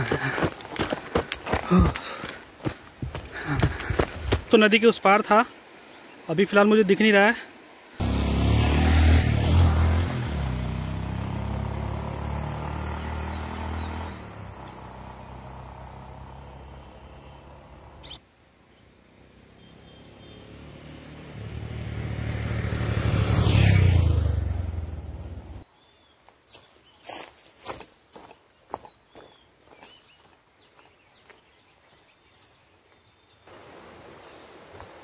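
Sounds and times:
vehicles driving past: 8.0s - 18.2s, 18.8s - 25.6s.

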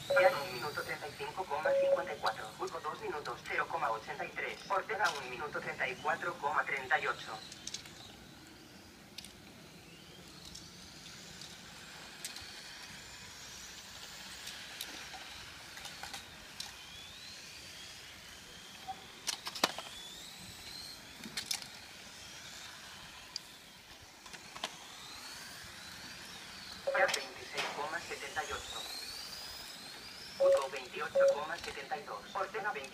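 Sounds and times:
toy car motors whining: 7.3s - 26.9s, 27.6s - 31.8s.

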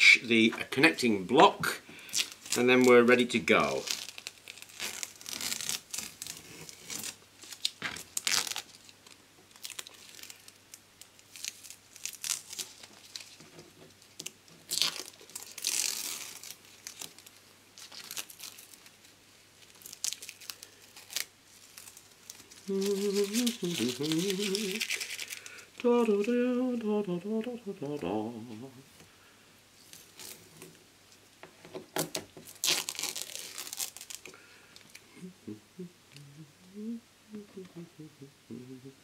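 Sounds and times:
masking tape being peeled off: 2.0s - 26.4s, 29.8s - 30.7s, 32.0s - 34.3s.

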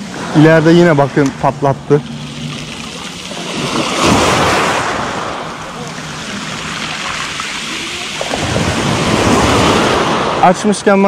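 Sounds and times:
waves washing on pebble beach: 2.1s - 10.7s.

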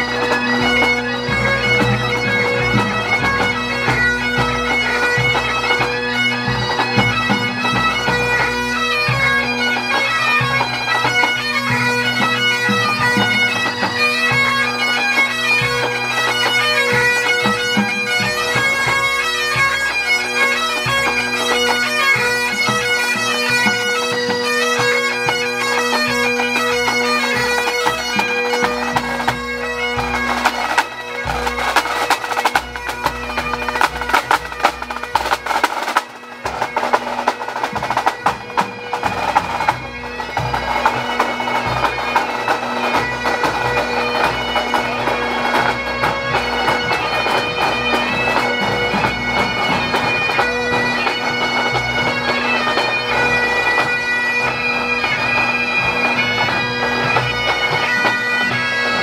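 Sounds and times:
bagpipes playing: 0.0s - 59.0s
drums beating: 30.0s - 52.2s.

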